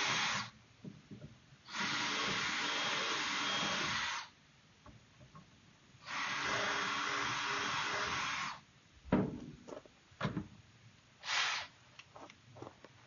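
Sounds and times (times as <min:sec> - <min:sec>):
sharp knocks and clicks: 0:00.8 - 0:01.4
cordless drill running: 0:01.7 - 0:04.3, 0:06.1 - 0:08.6.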